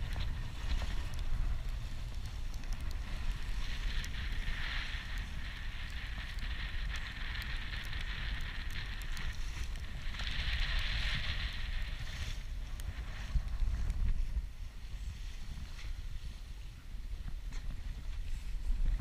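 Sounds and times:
faint ticks: 0.0s - 14.2s
high wind hiss: 0.0s - 19.0s
wind buffeting microphone: 0.0s - 19.0s.

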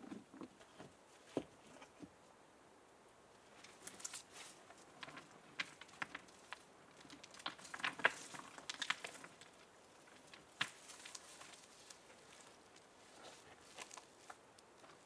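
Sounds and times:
dry leaves rustling and crackling: 3.6s - 15.0s.

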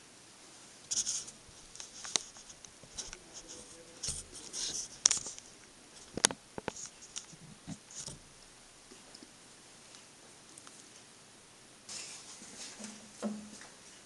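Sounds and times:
light clicks and scratchy scrapes: 0.9s - 8.2s.

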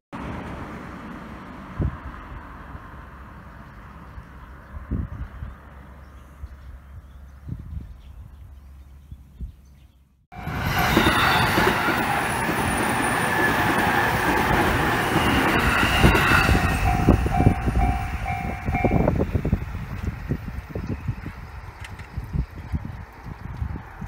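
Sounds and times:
train passing: 10.3s - 21.8s
level crossing warning bell: 10.4s - 19.3s
wheels clacking over rail joints: 10.4s - 20.1s.

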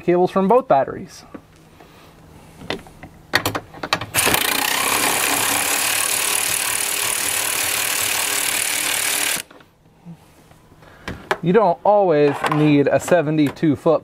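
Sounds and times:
electric ratchet motor whirring: 4.2s - 9.5s.

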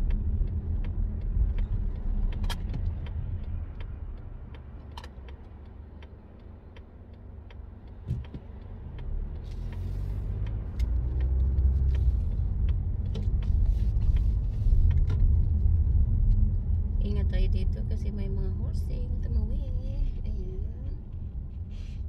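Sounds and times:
car engine accelerating: 0.0s - 19.4s
turn signal ticking: 0.0s - 21.7s.

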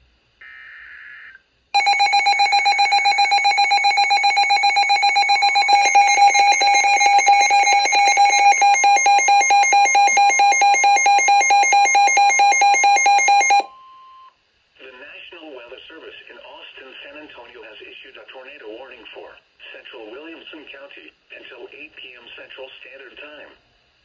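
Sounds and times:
pulsing electronic alarm: 1.8s - 13.7s
data tones: 1.8s - 13.8s.

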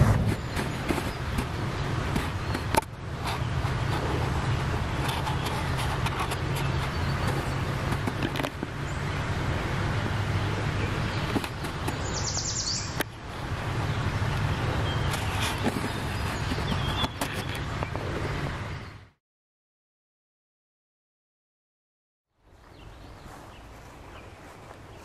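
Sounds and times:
low outdoor rumble: 0.0s - 19.1s
bird trill: 12.0s - 13.0s.

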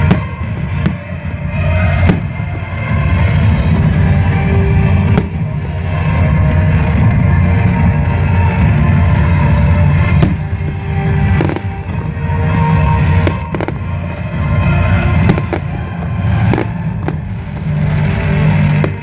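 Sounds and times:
fireworks banging: 0.0s - 19.0s
loud music with heavy bass: 0.0s - 19.0s.

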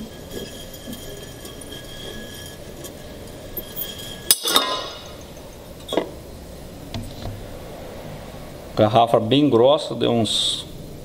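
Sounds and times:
glass bottle cracking: 0.0s - 5.4s
glass clinks: 0.0s - 6.1s.

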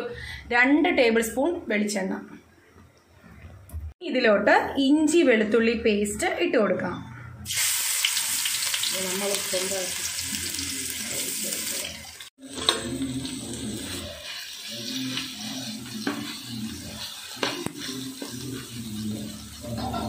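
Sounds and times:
paste sizzling in hot oil: 7.5s - 20.0s
steel spoon scraping a pan: 12.4s - 20.0s.

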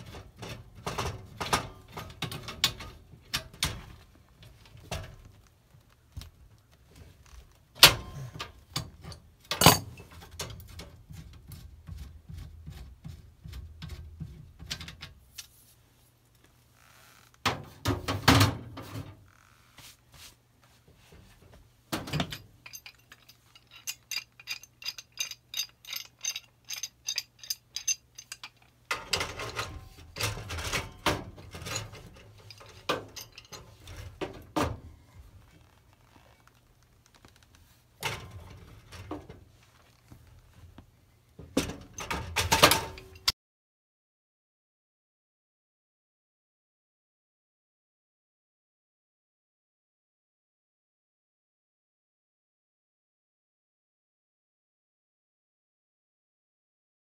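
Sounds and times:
metal tools clinking on sheet metal: 0.0s - 5.2s, 7.8s - 11.0s, 22.0s - 34.8s, 38.0s - 39.3s, 41.6s - 43.3s.

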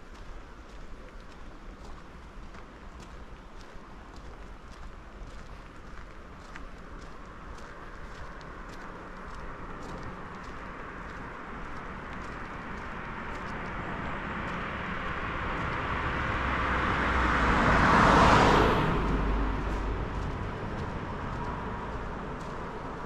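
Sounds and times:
car passing by: 8.7s - 23.0s.

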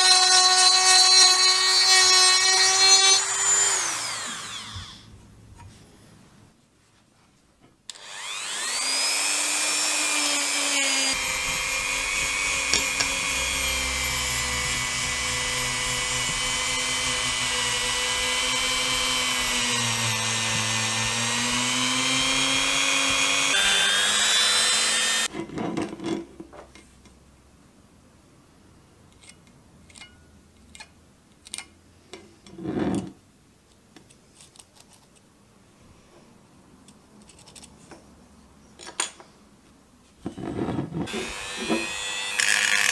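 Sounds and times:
rotary tool spinning at high speed: 2.7s - 4.8s, 8.0s - 25.3s.

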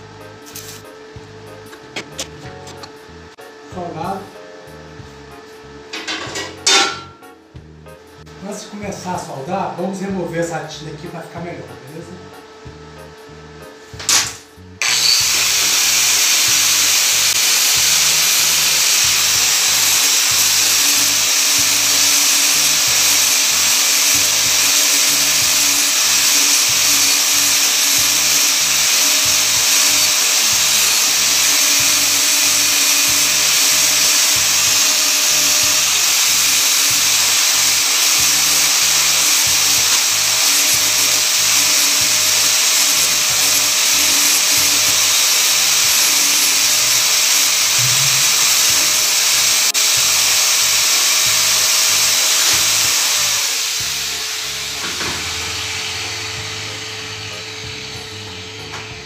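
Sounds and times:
angle grinder grinding metal: 0.0s - 3.2s, 5.9s - 7.2s, 13.9s - 59.0s
background music with beat: 0.0s - 6.0s.

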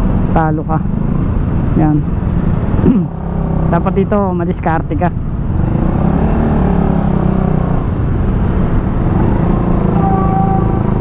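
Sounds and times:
road and wind rumble: 0.0s - 11.0s
short steady tone: 9.9s - 10.8s.

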